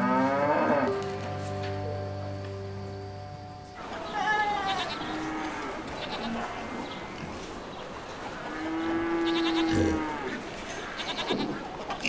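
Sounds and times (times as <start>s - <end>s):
cattle mooing: 0.0s - 1.0s, 8.5s - 10.4s.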